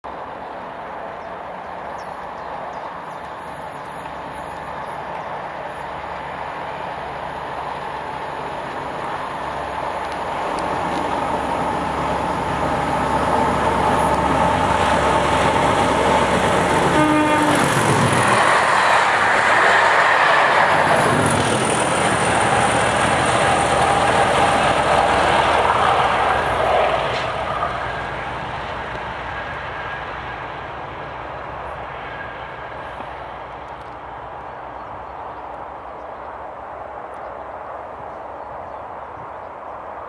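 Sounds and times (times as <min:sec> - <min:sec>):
rumble of train coaches: 0:00.0 - 0:40.0
diesel locomotive engine passing: 0:00.1 - 0:40.0
train horn blast: 0:16.8 - 0:17.8.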